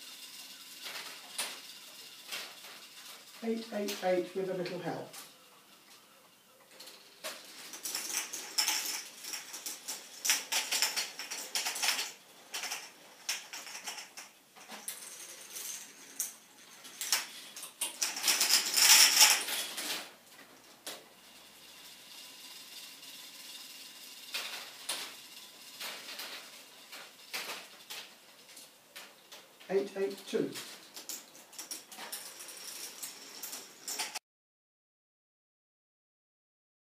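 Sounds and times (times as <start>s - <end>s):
balls clattering through plastic mechanism: 0.0s - 5.4s, 6.7s - 34.2s.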